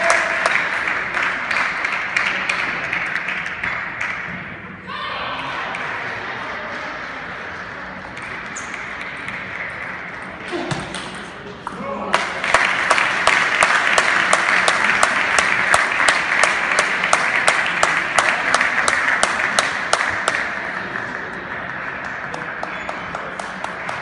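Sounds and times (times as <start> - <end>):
audience applauding: 0.0 - 4.2, 12.1 - 24.0.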